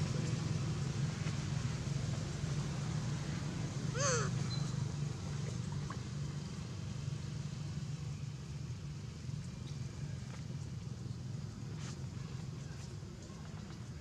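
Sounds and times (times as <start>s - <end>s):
low engine hum: 0.0s - 14.0s.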